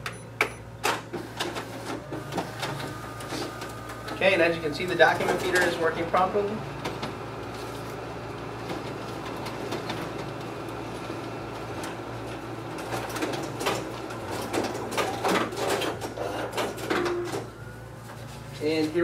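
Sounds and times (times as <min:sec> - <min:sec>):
copier machine hum: 0:00.0 - 0:19.0
clicks and clatter of paper handling: 0:05.1 - 0:05.8.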